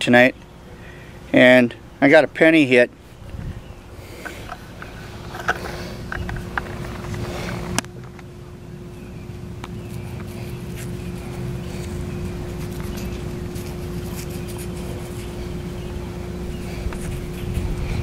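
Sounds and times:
faint steady hum: 0.0 - 18.0
steady low rumble: 2.9 - 18.0
fingers scraping through dirt: 9.7 - 18.0.

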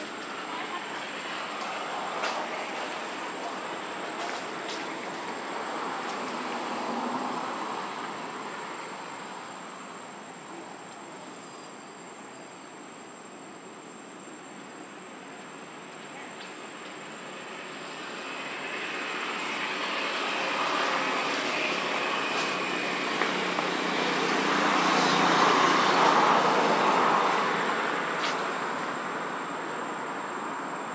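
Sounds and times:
distant engine passing by: 17.8 - 28.9.

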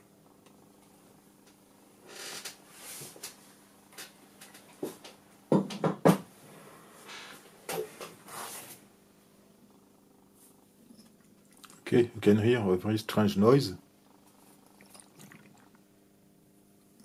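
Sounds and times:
brushing and scraping on workbench: 2.7 - 3.2, 8.1 - 8.8
sharp knocks: 5.5 - 6.3.

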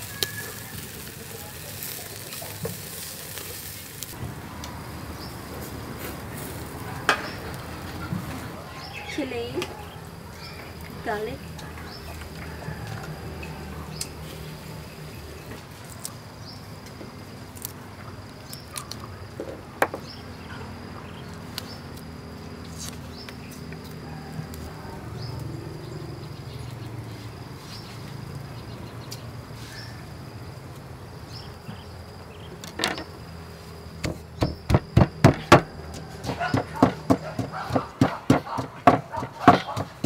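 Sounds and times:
insects chirping: 0.0 - 40.0
pestle pounding in a mortar: 34.0 - 40.0.

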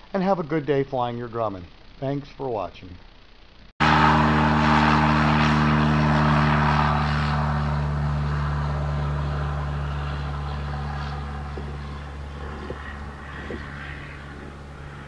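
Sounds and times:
propeller airplane engine: 3.8 - 15.0.

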